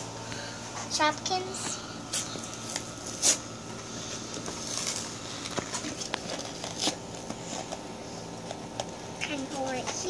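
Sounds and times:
plastic packaging crinkling: 4.2 - 9.0.

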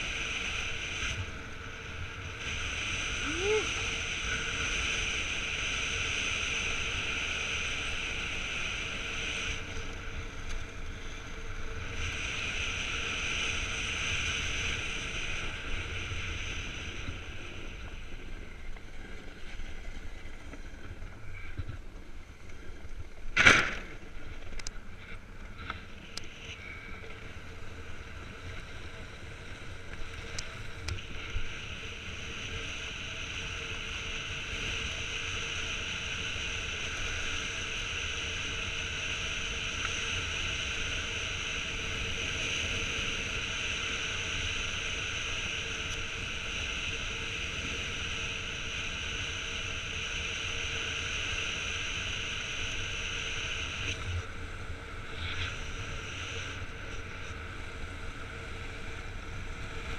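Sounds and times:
loud sharp knock: 23.4 - 23.9.

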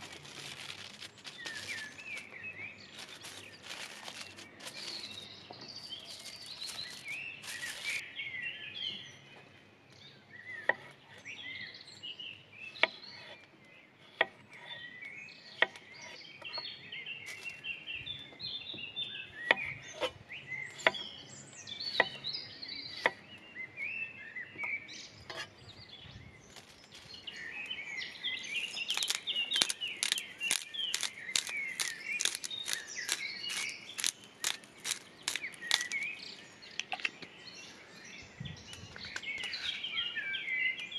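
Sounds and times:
birds chirping: 0.0 - 40.9
rapid knife clicks: 29.0 - 36.0.

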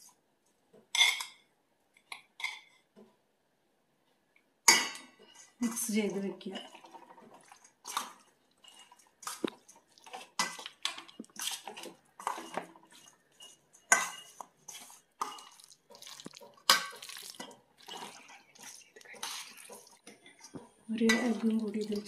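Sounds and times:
hands squelching wet marinade: 6.9 - 13.8, 14.4 - 20.0
scraping against metal bowl: 11.4 - 20.0.

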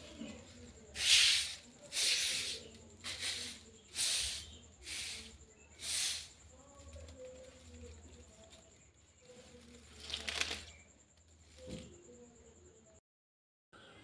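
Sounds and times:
broom sweeping concrete floor: 0.0 - 10.1.

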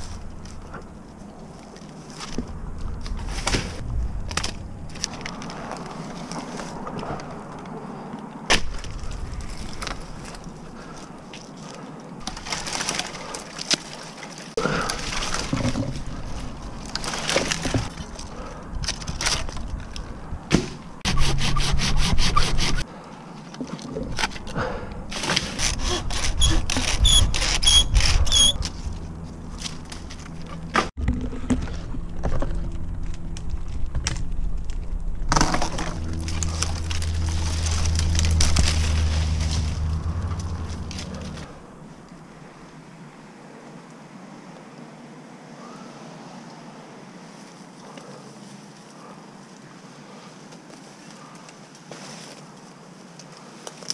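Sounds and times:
branches scraping and rustling: 0.0 - 43.0, 46.7 - 53.9
wood cracking and breaking: 2.2 - 6.4, 12.2 - 14.0, 14.7 - 20.7, 29.6 - 41.5
steady low drone: 2.4 - 6.0, 28.0 - 42.6.

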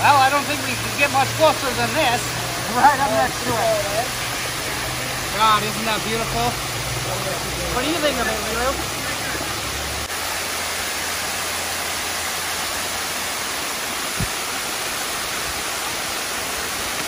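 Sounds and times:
waterfall onto rocks: 0.0 - 17.0.

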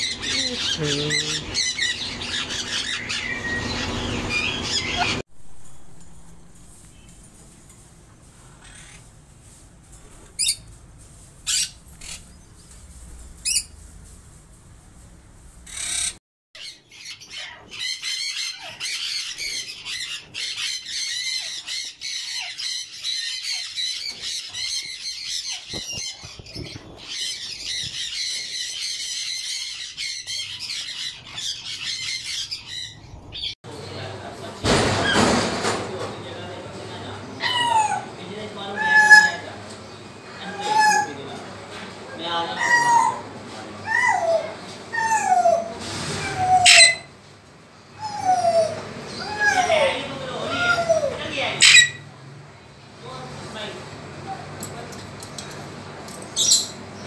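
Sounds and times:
parakeet chatter: 0.0 - 5.2, 8.4 - 9.1, 10.2 - 10.7, 11.4 - 12.7, 13.3 - 13.8, 15.6 - 34.2, 36.2 - 47.2, 48.0 - 52.1
parakeets squawking: 0.0 - 5.2, 8.5 - 9.1, 10.2 - 10.7, 11.4 - 12.6, 13.3 - 13.8, 15.6 - 33.6, 36.3 - 47.2, 47.9 - 52.2, 56.3 - 57.0.

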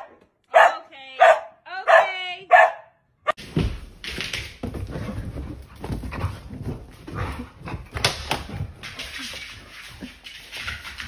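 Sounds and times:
paws thudding on floor: 3.5 - 8.8.

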